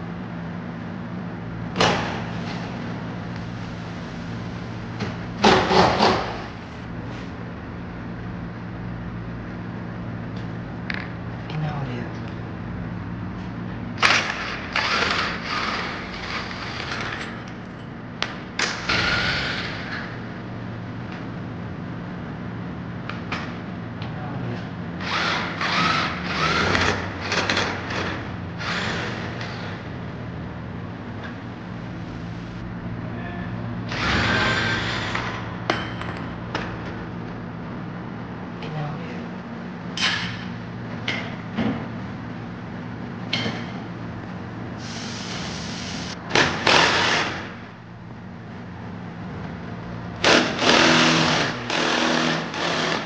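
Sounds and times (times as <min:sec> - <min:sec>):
low workshop hum: 0:00.0 - 0:53.0
impact wrench whining and hammering: 0:05.0 - 0:06.5, 0:25.0 - 0:29.8, 0:33.8 - 0:37.0, 0:46.3 - 0:47.6, 0:50.2 - 0:53.0.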